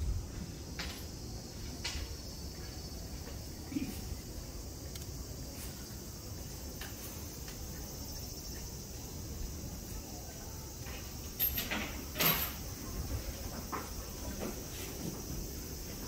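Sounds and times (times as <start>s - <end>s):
high insect chorus: 0.0s - 16.0s.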